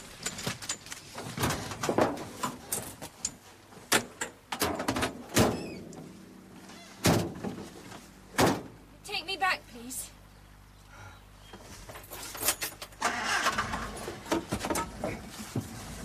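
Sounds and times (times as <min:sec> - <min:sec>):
knocks and thuds of loading: 0:00.2 - 0:03.0, 0:03.9 - 0:05.7, 0:07.0 - 0:07.7, 0:08.3 - 0:08.8
van doors banging shut: 0:03.9 - 0:05.8, 0:07.0 - 0:07.6, 0:08.3 - 0:08.8.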